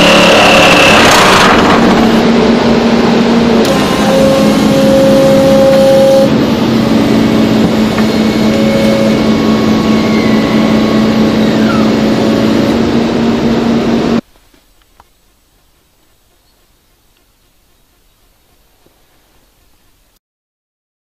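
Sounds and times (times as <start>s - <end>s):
excavator engine and hydraulics: 0.0s - 14.2s
pile driver working: 0.0s - 14.2s.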